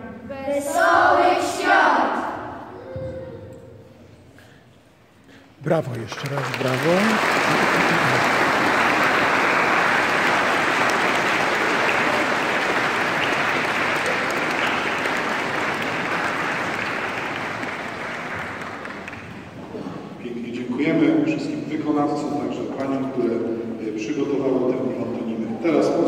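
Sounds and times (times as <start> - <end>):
audience applauding: 5.6 - 19.6.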